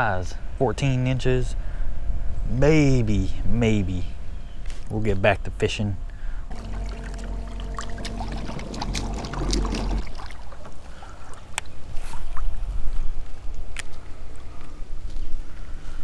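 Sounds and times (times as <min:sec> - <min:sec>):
low hum: 0:06.5 - 0:10.8
water noise: 0:06.5 - 0:12.6.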